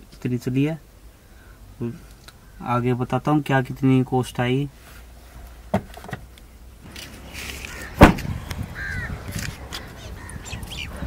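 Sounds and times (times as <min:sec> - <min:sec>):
birds calling: 0:06.9 - 0:11.0
car door clicks: 0:08.0 - 0:08.3
car door slamming: 0:08.0 - 0:08.4.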